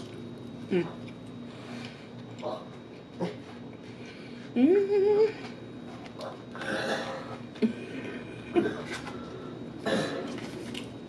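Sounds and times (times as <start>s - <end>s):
woman humming mmm: 0.7s - 1.0s, 4.5s - 5.4s.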